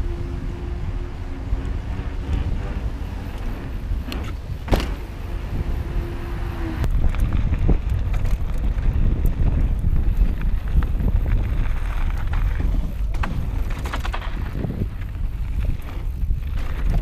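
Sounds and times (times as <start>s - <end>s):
bike rattling on gravel: 0.0s - 17.0s
bike rolling on paved road: 0.0s - 17.0s
wind buffeting microphone: 0.0s - 17.0s.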